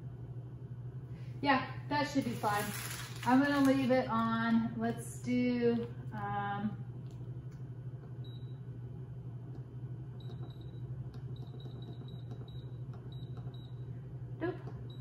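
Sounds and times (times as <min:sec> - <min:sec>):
steady low hum: 0:00.0 - 0:15.0
pressure cooker beeping: 0:10.2 - 0:13.9.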